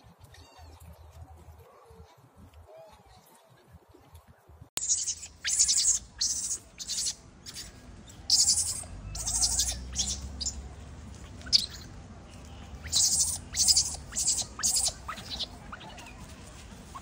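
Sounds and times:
baby monkey shrieking: 0:04.8 - 0:10.6, 0:11.3 - 0:11.9, 0:12.8 - 0:16.2.

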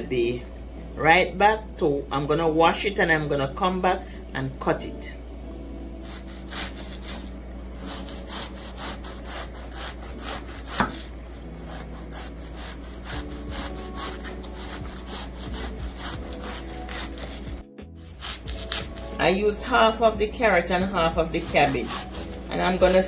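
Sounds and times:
knife slicing cabbage on board: 0:06.0 - 0:19.2, 0:21.2 - 0:23.0.

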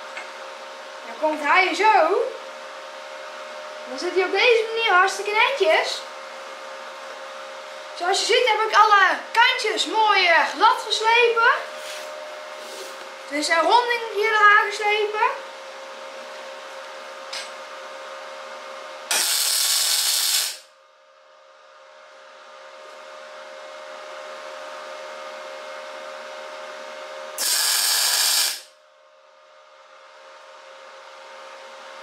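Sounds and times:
steady hum: 0:00.0 - 0:32.0
welding arc hissing: 0:19.1 - 0:20.7, 0:27.4 - 0:28.8.

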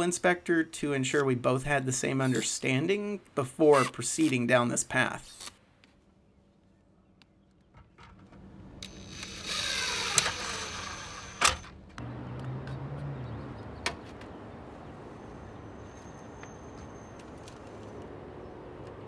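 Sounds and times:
impact driver driving screws: 0:08.8 - 0:11.6.

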